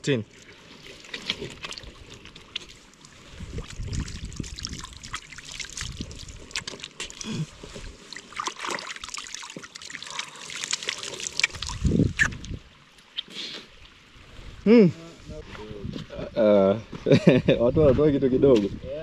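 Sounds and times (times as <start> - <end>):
water splashing by hand: 0.3 - 13.7.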